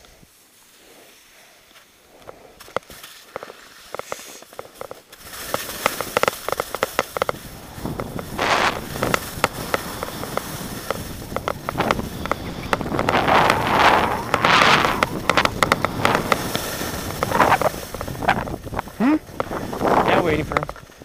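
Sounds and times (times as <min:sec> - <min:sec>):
skis scraping over snow: 0:00.1 - 0:21.0
wind on microphone: 0:07.2 - 0:20.9.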